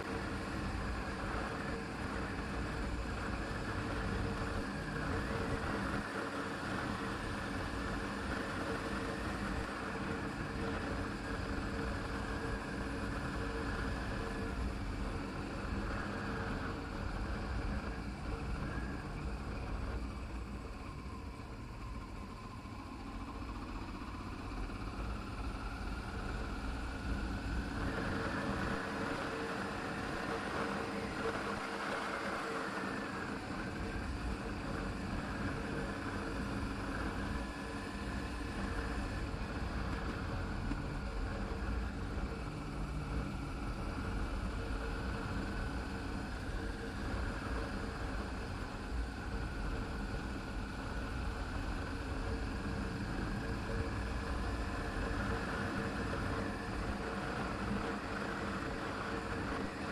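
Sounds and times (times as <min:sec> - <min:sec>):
wind and road noise: 0:23.3 - 0:59.9.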